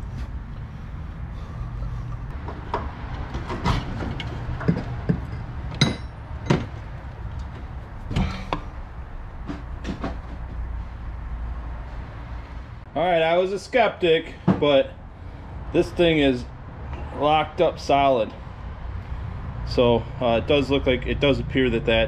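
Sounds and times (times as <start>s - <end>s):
steady low hum: 0.0s - 3.1s
tools knocking on metal: 3.6s - 6.8s
hammer striking metal punch: 4.7s - 6.7s.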